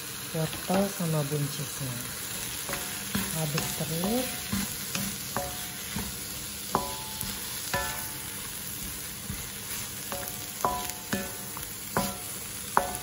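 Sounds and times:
food sizzling in a wok: 0.0s - 13.0s
spatula knocking against pan: 2.7s - 9.5s, 10.1s - 13.0s.

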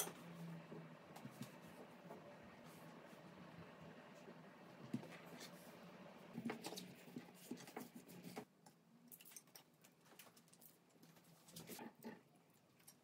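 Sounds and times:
hands working dough: 0.0s - 8.6s
low room hum: 0.0s - 13.0s.

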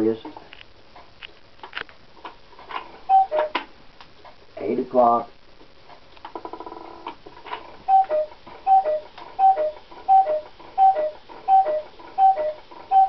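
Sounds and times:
two-note cuckoo call: 3.1s - 3.6s
clock mechanism whirring: 7.9s - 13.0s.

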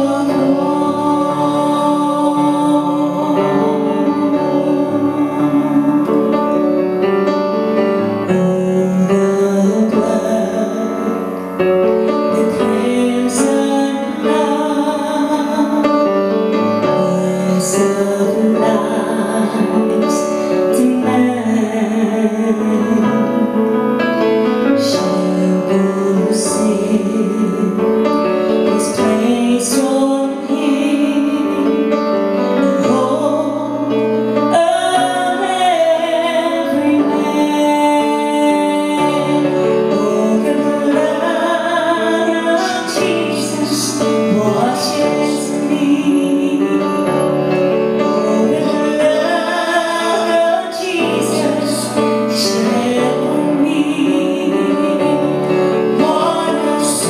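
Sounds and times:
piano accompaniment: 0.0s - 57.0s
woman singing into a microphone: 0.0s - 57.0s.

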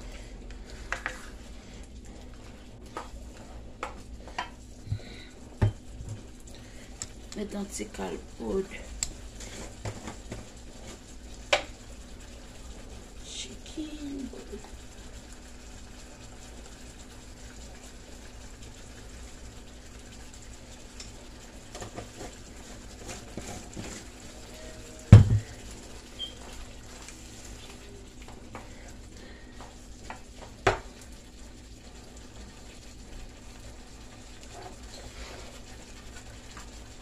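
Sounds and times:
sauce cooking in wok: 0.0s - 37.0s
spoon knocking on pan: 25.1s - 25.5s.

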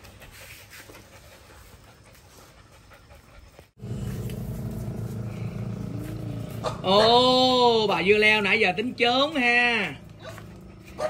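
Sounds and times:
dog panting: 0.0s - 3.8s, 10.0s - 11.0s
steady low hum: 3.2s - 11.0s.

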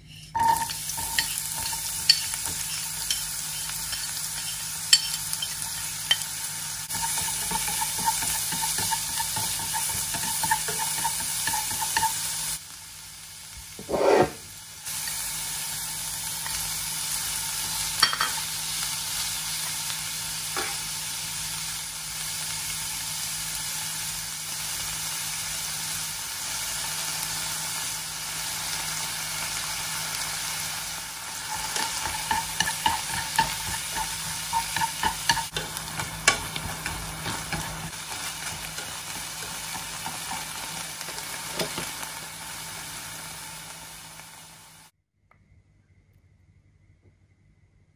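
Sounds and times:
chopsticks scraping a pan: 0.0s - 6.2s, 6.9s - 12.5s, 13.8s - 14.5s, 31.4s - 40.8s
onion and beef sizzling in a pan: 0.0s - 44.9s.

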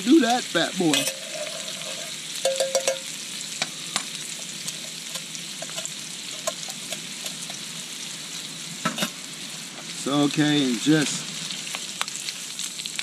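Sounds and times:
meat sizzling in a pan: 0.0s - 13.0s
utensil scraping metal pan: 0.9s - 2.2s.

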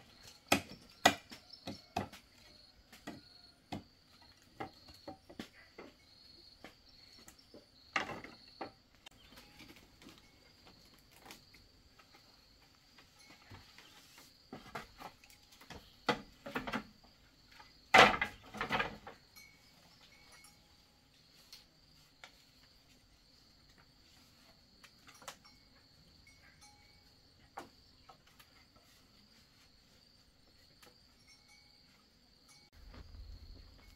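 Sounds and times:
insects chirring: 0.0s - 33.9s
wooden knocks and clatters: 6.6s - 10.4s, 14.5s - 19.3s.

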